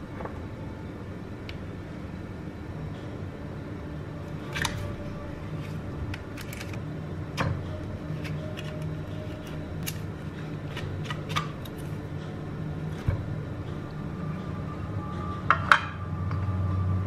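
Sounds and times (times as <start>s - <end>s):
can lid peeled with metallic clicks: 5.6s - 6.8s, 8.2s - 10.1s, 10.7s - 12.0s.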